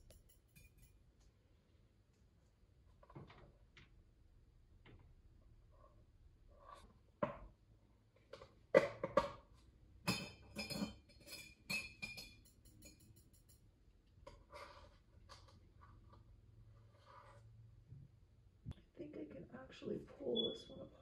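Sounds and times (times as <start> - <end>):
glass and metal clinking: 0.0 - 1.0, 10.0 - 13.6.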